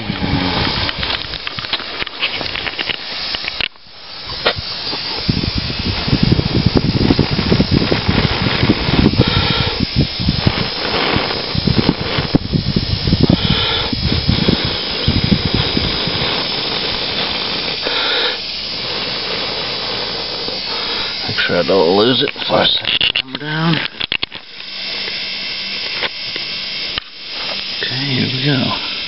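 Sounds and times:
wind buffeting microphone: 0.0s - 24.3s
camera handling rustle: 0.8s - 5.1s, 22.3s - 25.2s.

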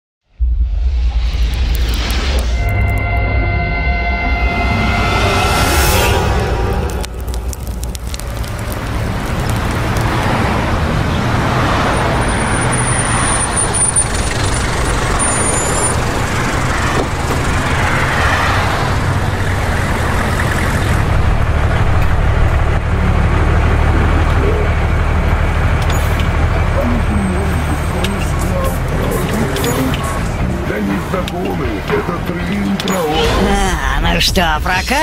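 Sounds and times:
thin high whine: 1.6s - 7.3s
bus engine rumble and road noise: 5.0s - 35.0s.

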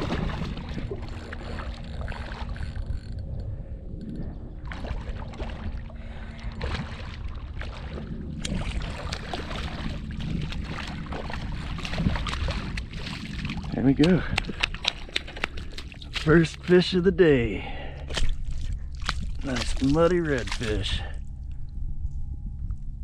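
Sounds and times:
fish splashing in water: 0.0s - 2.6s, 4.7s - 13.7s
steady low rumble: 0.0s - 23.0s.

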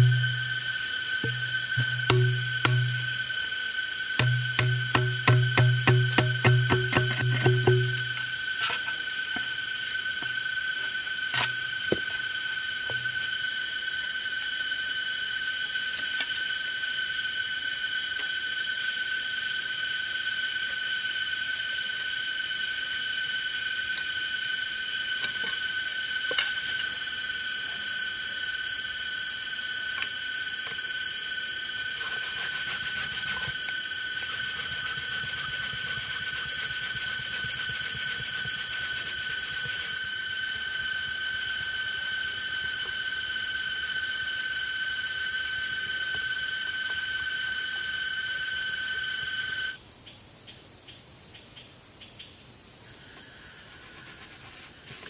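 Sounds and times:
machete tapping and scraping bamboo: 0.0s - 3.4s, 4.2s - 9.5s, 11.3s - 12.1s, 32.0s - 40.2s
forest insects droning: 0.0s - 55.0s.

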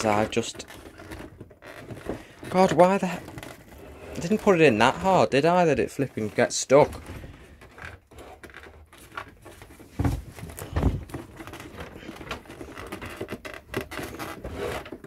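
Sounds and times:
plastic scraping and clicking: 0.0s - 15.0s
dull thumps: 6.8s - 15.0s.

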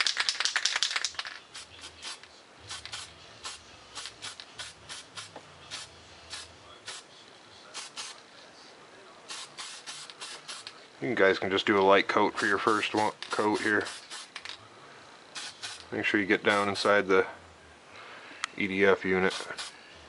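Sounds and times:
spray can ball rattling: 0.0s - 7.0s, 7.7s - 8.2s, 9.3s - 10.8s, 11.8s - 14.6s, 15.3s - 15.9s, 19.2s - 19.7s
spray paint hissing puffs: 0.2s - 7.1s, 7.7s - 8.2s, 9.3s - 10.7s, 12.4s - 14.5s, 15.3s - 15.9s, 19.3s - 19.8s.

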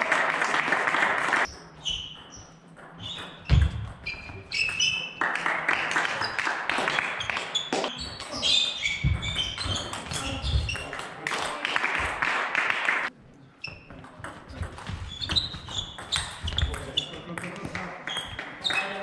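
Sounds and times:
loud noise in hall: 0.0s - 2.8s, 3.4s - 15.1s
table tennis ball on bats and table: 1.4s - 5.2s, 6.8s - 11.2s, 13.7s - 19.0s.

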